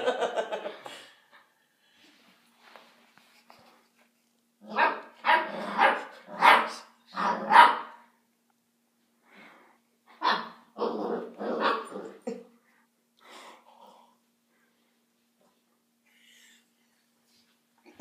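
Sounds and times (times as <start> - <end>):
puppy barking: 4.7 - 8.0.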